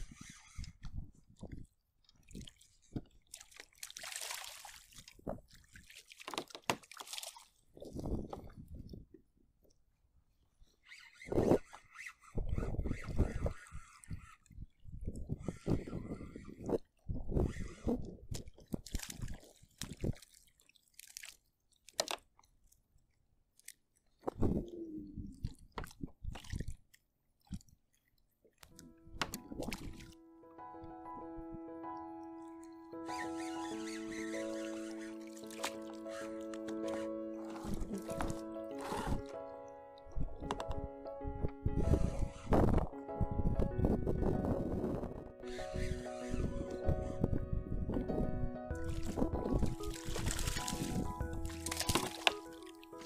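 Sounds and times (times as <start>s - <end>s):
fish splashing in water: 3.3s - 7.6s, 18.8s - 22.2s, 33.2s - 39.3s, 48.8s - 53.0s.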